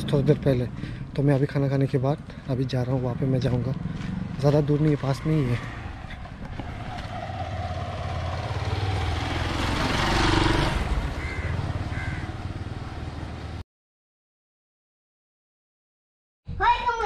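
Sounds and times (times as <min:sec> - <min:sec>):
motorcycle passing by: 0:00.0 - 0:01.9, 0:02.6 - 0:13.6.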